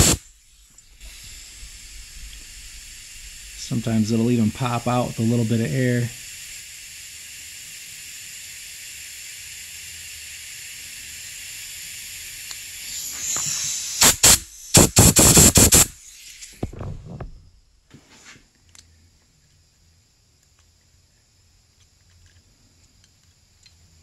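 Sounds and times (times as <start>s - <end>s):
compressed air blasts: 0.0s - 17.4s
steady air hiss: 0.0s - 18.5s.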